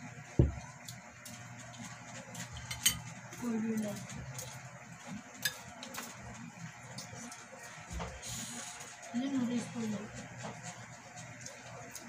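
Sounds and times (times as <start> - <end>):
cutlery clinking against plates: 1.3 - 3.2, 5.4 - 6.2.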